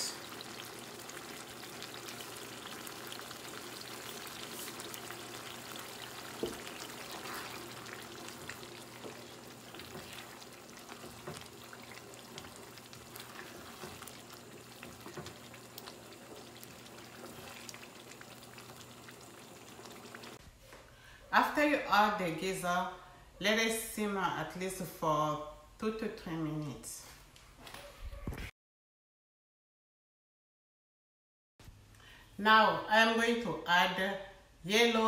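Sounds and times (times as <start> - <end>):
sauce sizzling and bubbling: 0.0 - 20.4
wooden spoon stirring: 0.0 - 20.4.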